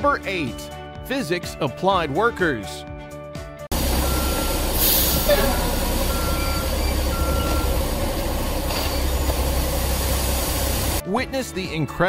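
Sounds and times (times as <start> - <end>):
back-up alarm beeping: 3.7 - 9.3
concrete mixer truck rumbling: 3.7 - 11.0.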